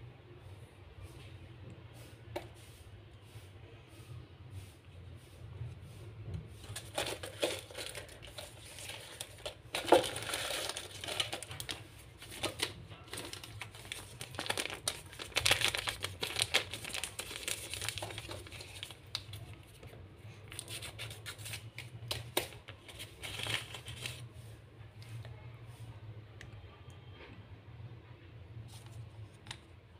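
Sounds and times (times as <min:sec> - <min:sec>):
paper crinkling and rustling: 0:06.6 - 0:24.3.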